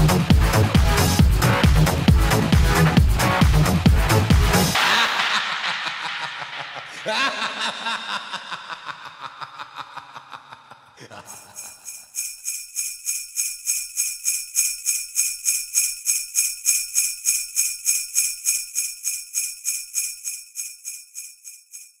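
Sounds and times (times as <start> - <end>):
sleigh bells jingling: 11.1 - 22.0.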